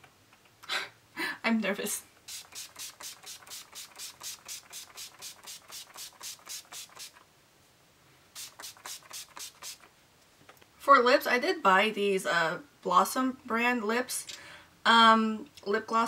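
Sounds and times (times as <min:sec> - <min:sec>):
spray bottle pump hissing: 0:02.2 - 0:07.2, 0:08.3 - 0:09.9.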